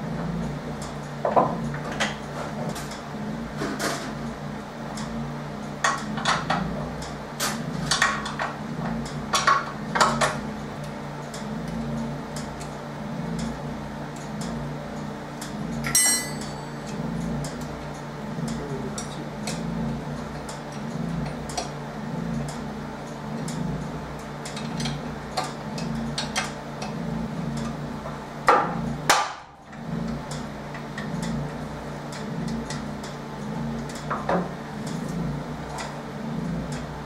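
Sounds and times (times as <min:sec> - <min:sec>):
steady low hum: 0:00.0 - 0:37.0
metal tools clinking: 0:15.9 - 0:16.9
ringing metallic strike: 0:15.9 - 0:16.9.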